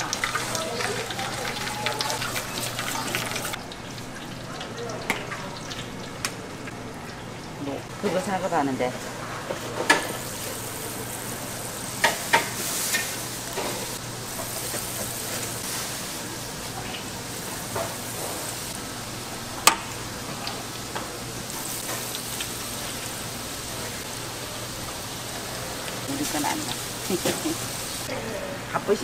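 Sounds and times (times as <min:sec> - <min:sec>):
food sizzling in hot oil: 0:00.0 - 0:28.1.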